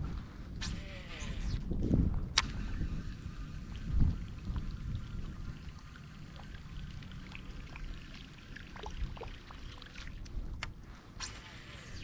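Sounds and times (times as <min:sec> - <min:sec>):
low steady rumble: 0:00.0 - 0:12.0
water trickling and dripping: 0:03.7 - 0:10.7.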